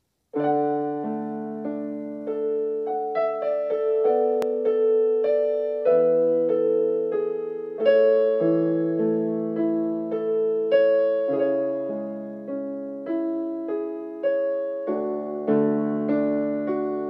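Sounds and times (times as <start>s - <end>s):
piano melody over chords: 0.3s - 17.0s.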